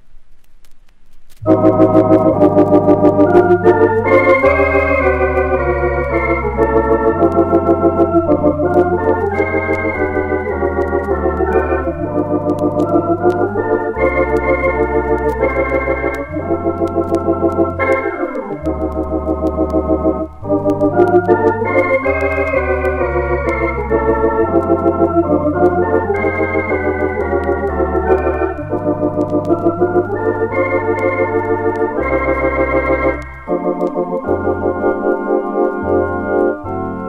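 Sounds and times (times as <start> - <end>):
electronic organ chords: 1.4 - 37.0
organ bass line: 1.4 - 37.0.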